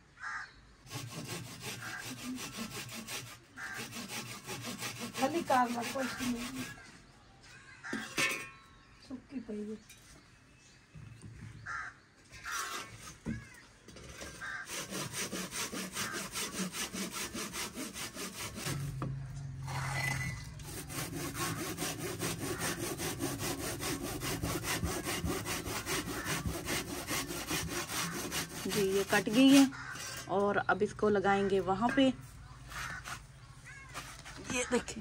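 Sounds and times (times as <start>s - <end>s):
hand saw cutting dried mud: 0.9s - 6.8s, 12.4s - 13.5s, 14.2s - 30.4s, 32.7s - 33.3s.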